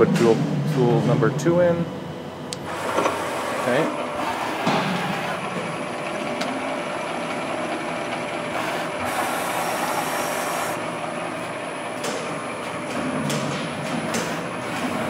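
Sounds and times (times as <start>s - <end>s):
milling machine humming: 0.0s - 15.0s.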